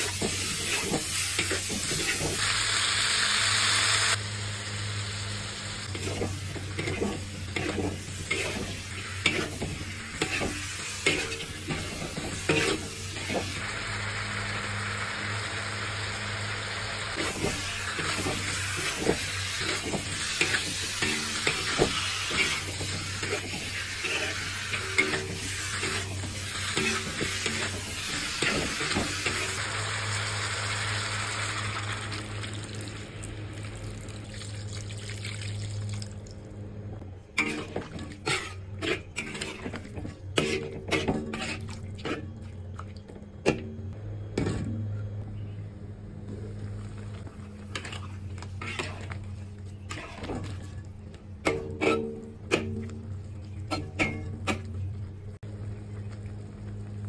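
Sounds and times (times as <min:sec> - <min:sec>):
metal spatula scraping wok: 0:00.0 - 0:02.4, 0:05.8 - 0:13.6, 0:17.1 - 0:29.6, 0:37.4 - 0:42.4, 0:47.7 - 0:50.8, 0:51.4 - 0:52.4
sizzling in a hot wok: 0:00.0 - 0:33.9.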